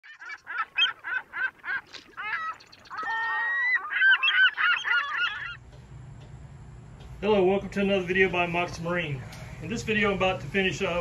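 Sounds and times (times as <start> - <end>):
animal calls: 0.0 - 5.6.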